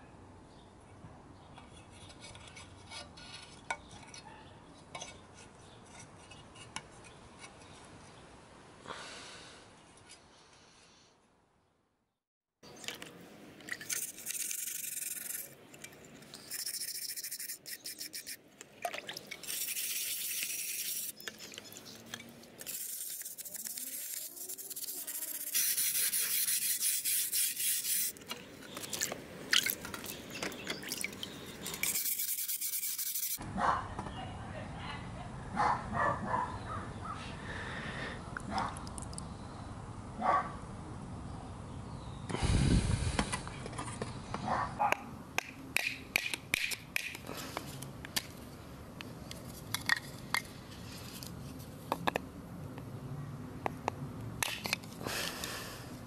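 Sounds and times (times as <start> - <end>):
hands rubbing metal: 13.7 - 18.4, 19.4 - 29.0, 30.0 - 33.4
wire brush scrubbing metal: 13.8 - 15.6, 16.3 - 18.4, 19.4 - 28.5, 31.6 - 33.4.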